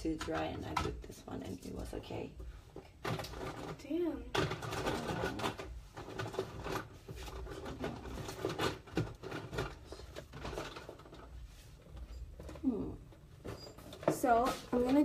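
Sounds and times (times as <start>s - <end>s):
handling clicks and knocks: 2.7s - 11.4s.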